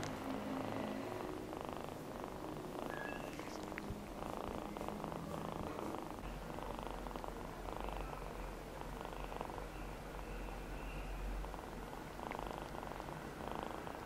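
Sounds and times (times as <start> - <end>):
kitten purring: 0.0 - 14.0.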